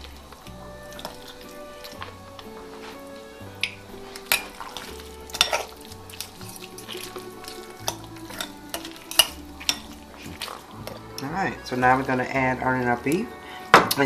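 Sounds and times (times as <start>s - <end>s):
background music with bass line: 0.0s - 14.0s
fork clinking against glass: 3.6s - 11.0s.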